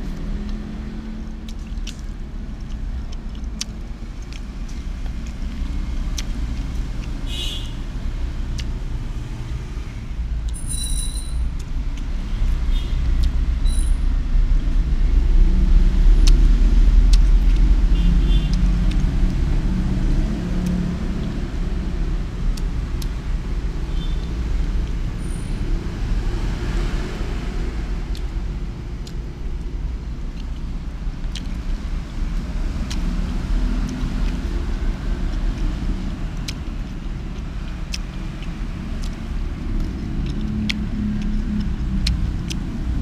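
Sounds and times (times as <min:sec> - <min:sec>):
road traffic rumble: 0:00.0 - 0:43.0
chopsticks clicking: 0:18.5 - 0:19.4, 0:30.4 - 0:31.6, 0:36.4 - 0:43.0.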